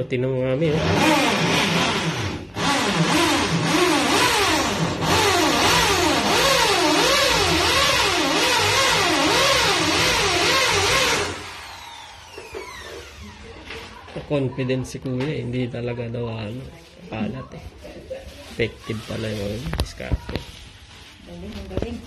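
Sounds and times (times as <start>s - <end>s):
electric drill boring into wall: 0.7s - 13.7s.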